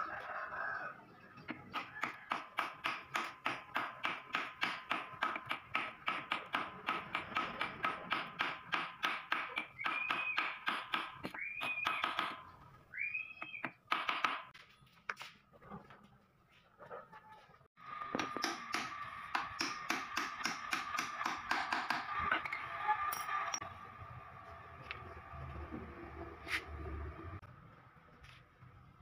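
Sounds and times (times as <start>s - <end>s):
hammer tapping metal: 18.2s - 22.1s.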